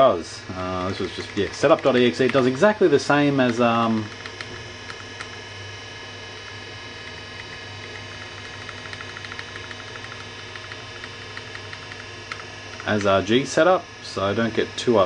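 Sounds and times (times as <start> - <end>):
computer humming: 0.0 - 15.0
keyboard key clicking: 7.9 - 13.1.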